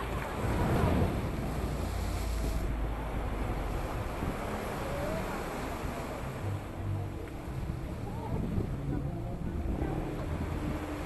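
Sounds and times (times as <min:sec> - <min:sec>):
waves breaking against rocks: 0:00.0 - 0:11.0
wind rumble on microphone: 0:00.0 - 0:11.0.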